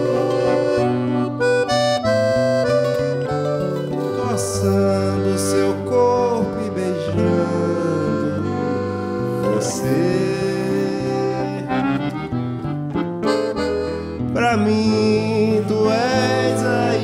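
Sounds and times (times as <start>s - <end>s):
accordion: 0.0s - 17.0s
acoustic guitar: 0.0s - 17.0s
bandolim: 0.0s - 17.0s
man singing: 4.0s - 12.2s, 14.3s - 17.0s.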